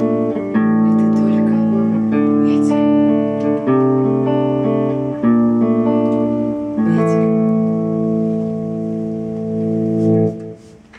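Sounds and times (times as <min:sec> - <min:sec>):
rock guitar chords strummed: 0:00.0 - 0:10.8.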